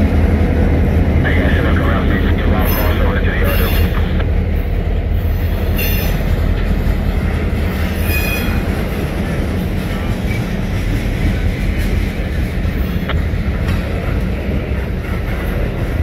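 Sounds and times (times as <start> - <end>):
train wheels rumbling on rails: 0.0 - 16.0
high wheel squeals: 5.7 - 6.3, 7.8 - 8.7.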